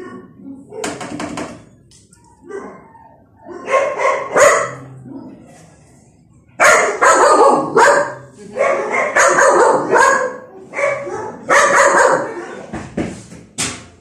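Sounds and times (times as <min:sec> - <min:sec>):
dog barking: 0:02.4 - 0:04.9, 0:06.6 - 0:12.6.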